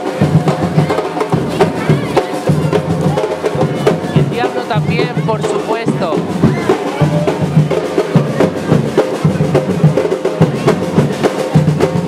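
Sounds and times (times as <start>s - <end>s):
drums beating fast rhythm: 0.0s - 12.0s.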